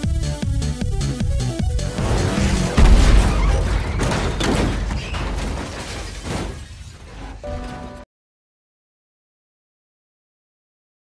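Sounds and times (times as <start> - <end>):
crash and boom sound effect: 1.6 - 7.8.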